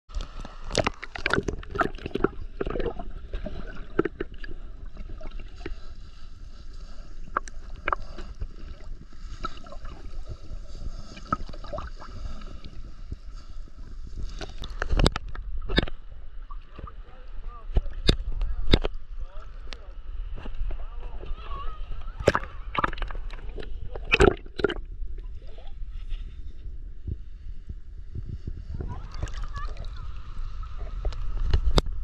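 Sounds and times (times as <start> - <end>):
water sloshing and splashing: 0.1 - 19.0, 22.0 - 25.7, 28.7 - 32.0
underwater clicks: 0.2 - 4.6, 14.4 - 17.0, 17.7 - 19.0, 22.2 - 24.9
muffled underwater rumble: 0.2 - 32.0.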